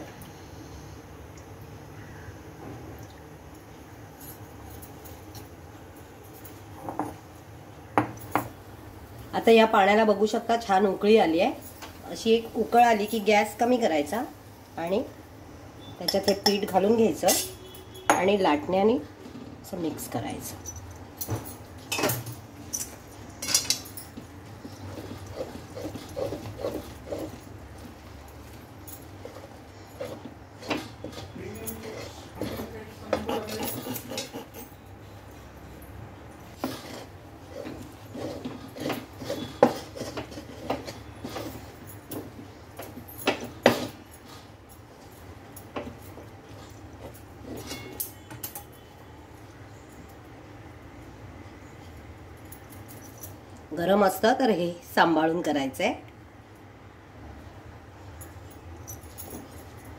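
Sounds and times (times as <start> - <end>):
rolling pin knocking and scraping pan: 36.6 - 41.6.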